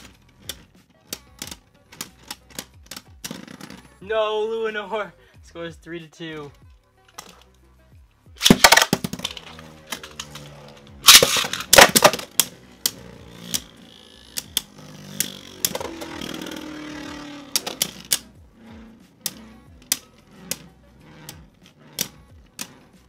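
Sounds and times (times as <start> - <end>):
plastic clatter: 8.4 - 13.7
spinning tops clashing clicks: 8.4 - 23.0
spinning tops whirring: 8.4 - 23.0.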